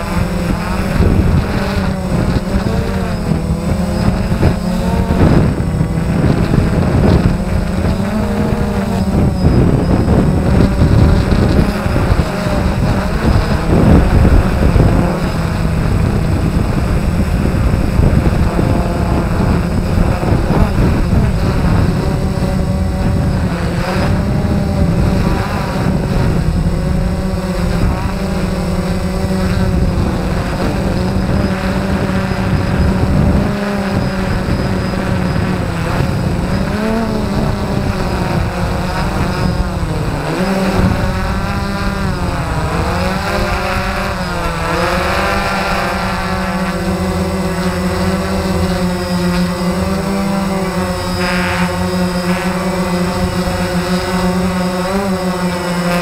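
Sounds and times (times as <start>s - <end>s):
electric motors and propellers buzzing: 0.0s - 56.0s.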